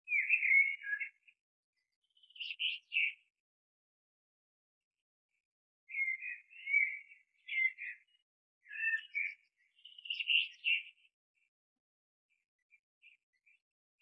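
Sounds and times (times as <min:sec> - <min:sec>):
bird chirping: 0:00.0 - 0:03.3, 0:05.9 - 0:11.5.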